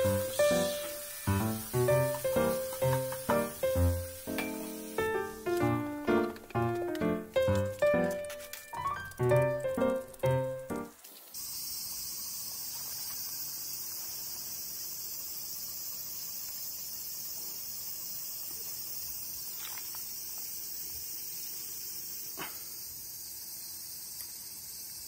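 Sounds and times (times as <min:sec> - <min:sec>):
cicadas calling: 0:00.0 - 0:25.0.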